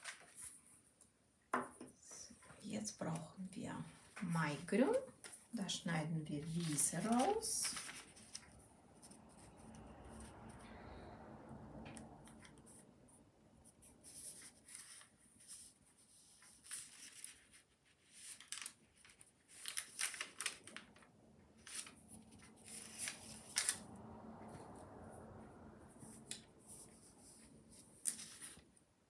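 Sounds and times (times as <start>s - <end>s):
paper rustling: 0.0s - 0.8s, 6.4s - 9.5s, 14.0s - 23.8s, 26.0s - 28.8s.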